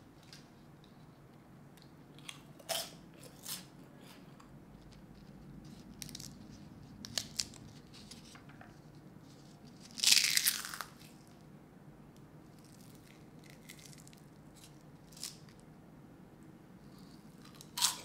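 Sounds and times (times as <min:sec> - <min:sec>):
crunching: 0:09.8 - 0:11.0
rice paper cracking: 0:09.8 - 0:11.2, 0:12.6 - 0:15.6.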